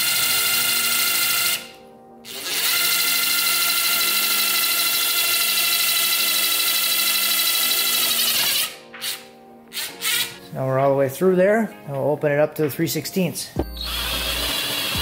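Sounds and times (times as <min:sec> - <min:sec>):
cordless drill whining: 0:00.0 - 0:10.4, 0:13.6 - 0:15.0.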